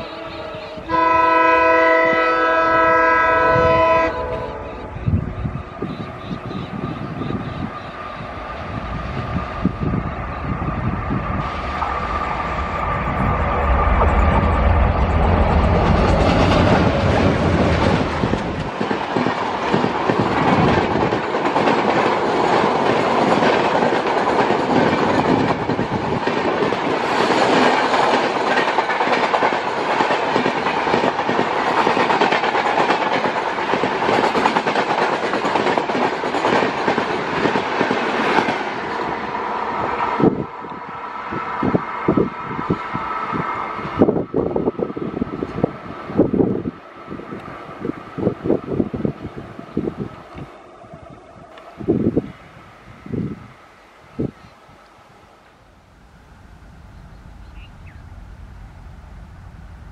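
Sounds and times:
diesel locomotive engines rumbling: 0:00.0 - 0:59.9
engine whine: 0:03.1 - 0:18.8
wheels clacking over rail joints: 0:11.6 - 0:39.2.

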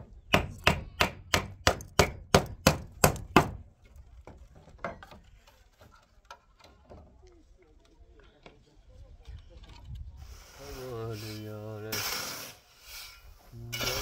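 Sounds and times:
sharp knocks on wood: 0:00.3 - 0:03.6.

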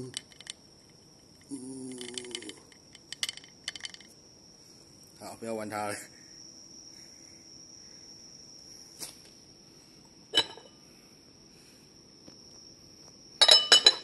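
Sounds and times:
tableware clinking: 0:10.4 - 0:10.7, 0:13.4 - 0:14.0.

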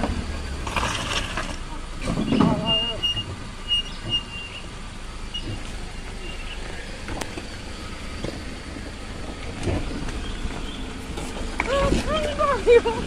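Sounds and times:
pickup truck engine idling: 0:00.0 - 0:13.0.

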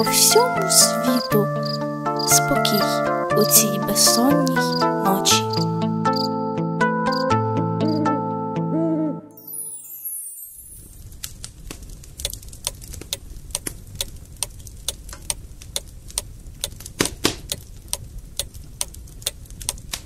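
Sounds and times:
wood fire crackling: 0:10.6 - 0:20.0.

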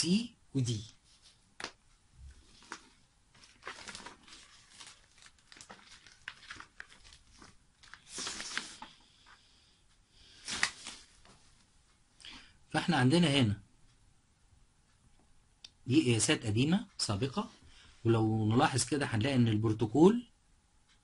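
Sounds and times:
faint rustling: 0:00.9 - 0:12.0.

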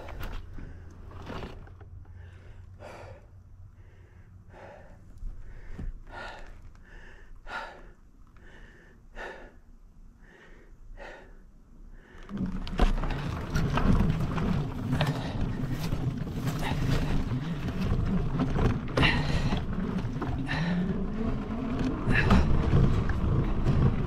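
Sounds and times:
person breathing hard: 0:02.1 - 0:12.5, 0:18.9 - 0:21.2, 0:22.0 - 0:22.9.

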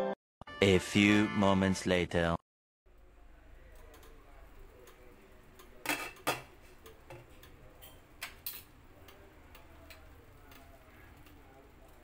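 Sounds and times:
cookware clinking: 0:05.8 - 0:08.8.

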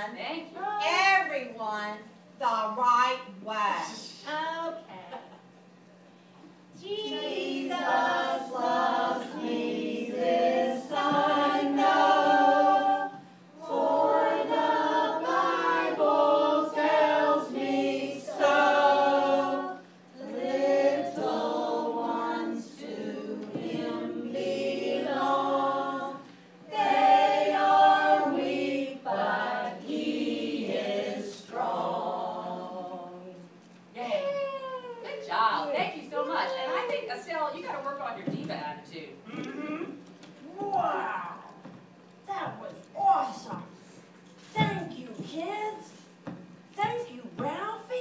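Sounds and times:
voices singing: 0:06.7 - 0:33.6.

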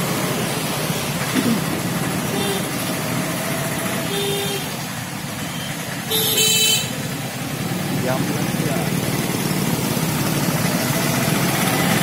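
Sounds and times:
road traffic rush: 0:00.0 - 0:12.0
horn toots: 0:05.5 - 0:07.0.

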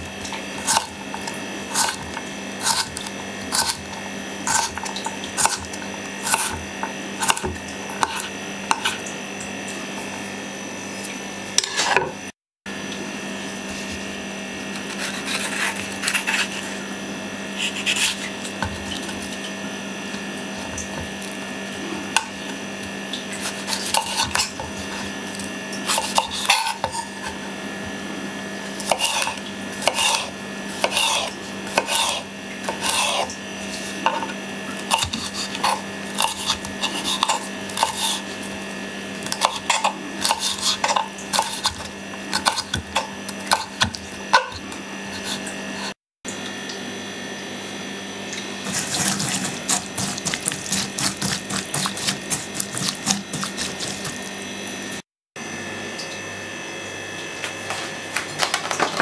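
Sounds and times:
knife tapping and scraping board: 0:23.4 - 0:24.8, 0:39.3 - 0:44.6, 0:48.7 - 0:54.2.

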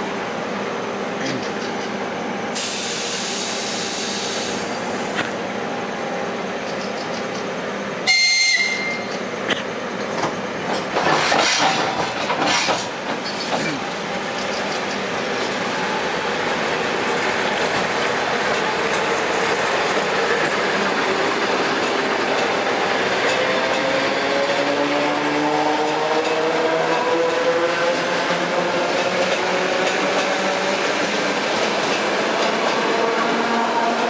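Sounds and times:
electric train rumbling: 0:00.0 - 0:34.0
burst of hiss: 0:02.6 - 0:04.7
high whistle blast: 0:08.1 - 0:09.1
wheels clattering over rails: 0:10.0 - 0:15.7.

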